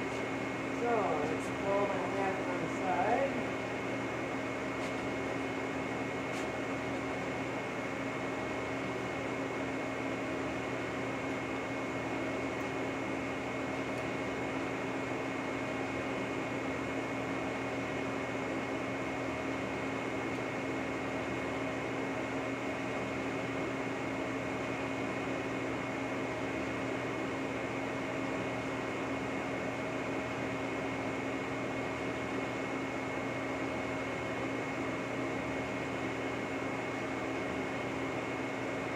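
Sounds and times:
high machine whine: 0.0 - 30.6
boring mill hum: 0.0 - 38.9.

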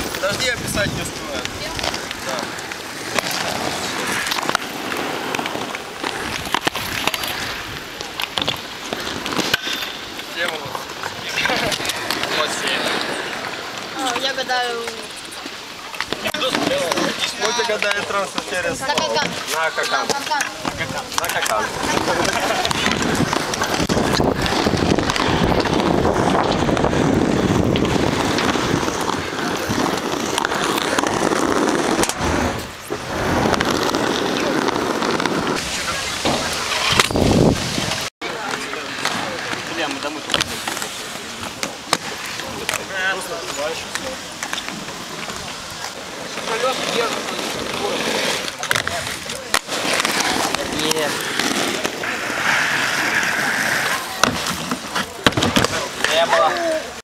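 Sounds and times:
scooter wheels rolling on asphalt: 0.0 - 57.0.

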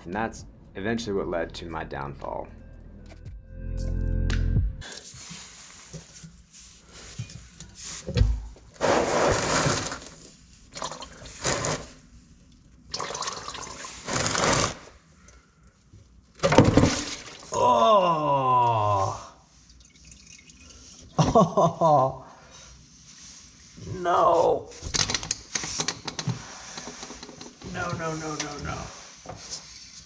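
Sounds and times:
drawn-out falling voice: 17.5 - 19.4.

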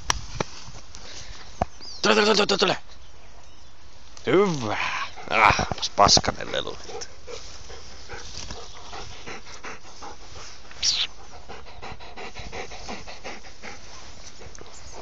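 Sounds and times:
dog panting: 5.1 - 15.0.

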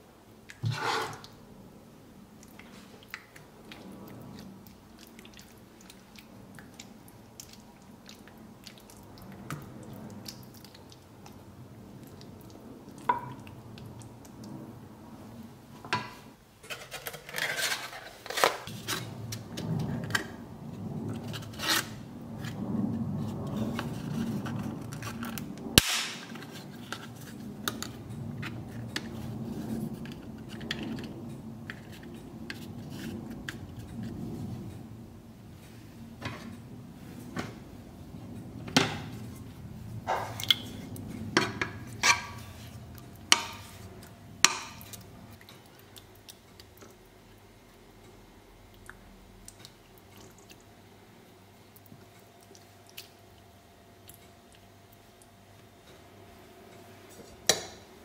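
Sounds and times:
ladle scraping glass dish: 0.6 - 1.3.

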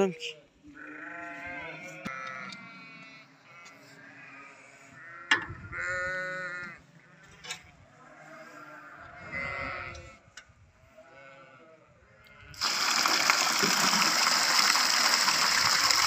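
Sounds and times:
livestock bleating: 0.7 - 12.6.

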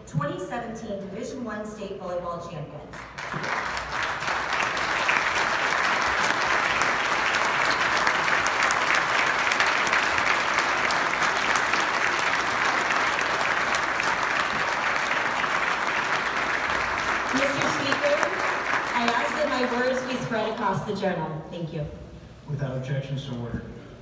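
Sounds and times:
crowd applauding: 3.0 - 20.8.

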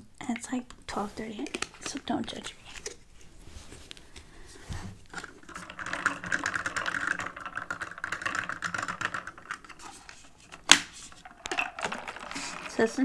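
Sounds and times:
straw rattling in cup: 5.1 - 13.0.

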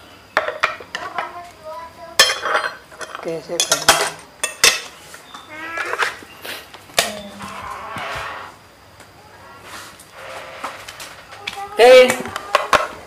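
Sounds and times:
cutlery clinking on plates: 2.2 - 5.0.

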